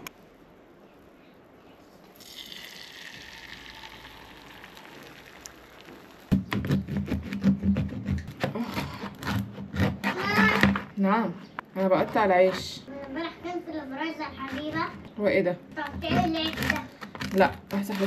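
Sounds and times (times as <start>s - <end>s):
egg sizzling in frying pan: 2.3s - 6.3s
bread knife sawing loaf: 6.7s - 10.6s.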